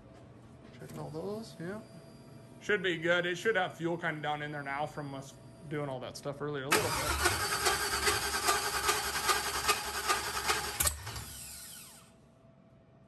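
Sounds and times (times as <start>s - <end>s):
starter motor cranking engine: 6.7s - 12.0s
starter spinning down whine: 6.7s - 12.0s.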